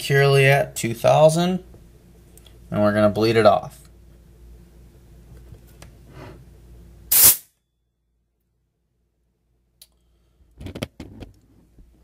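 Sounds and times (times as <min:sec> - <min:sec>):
high-pressure air hiss: 0:07.1 - 0:07.5.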